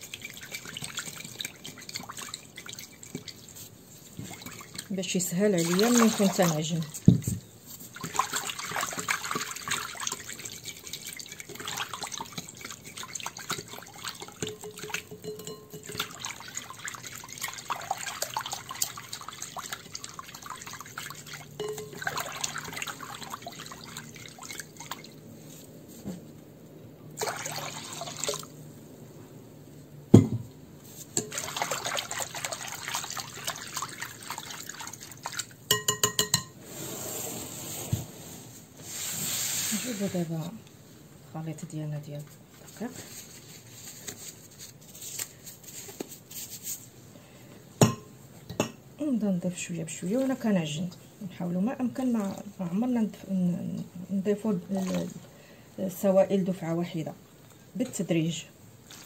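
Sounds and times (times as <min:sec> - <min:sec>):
whisk sloshing in glass bowl: 0:00.0 - 0:25.2, 0:27.2 - 0:28.5, 0:30.9 - 0:38.0, 0:52.0 - 0:52.6, 0:54.4 - 0:55.3
taps ringing glass: 0:14.4 - 0:16.0, 0:35.7 - 0:36.5.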